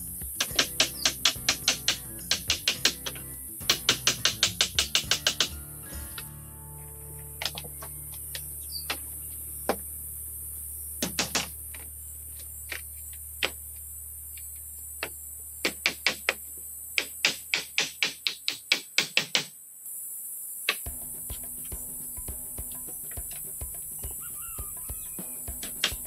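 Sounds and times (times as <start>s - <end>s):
tool striking bamboo: 0.0s - 5.6s, 15.6s - 16.4s, 17.0s - 19.5s, 20.7s - 26.0s
steady high hiss: 0.0s - 26.0s.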